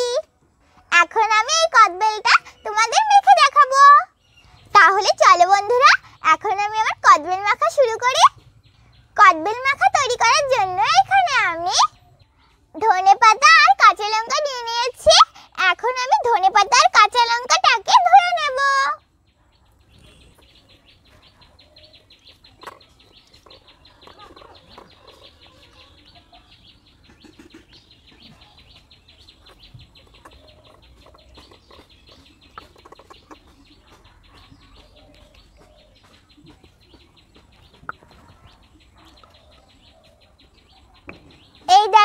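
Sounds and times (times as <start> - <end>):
chickens clucking: 19.9 - 41.7.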